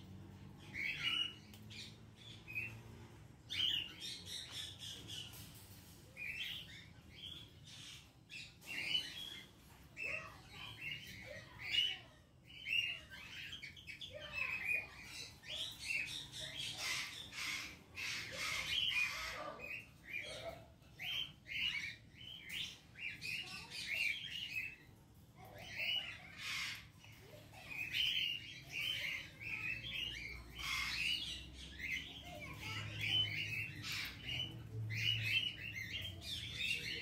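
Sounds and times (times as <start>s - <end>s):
birds chirping: 0.0s - 37.0s.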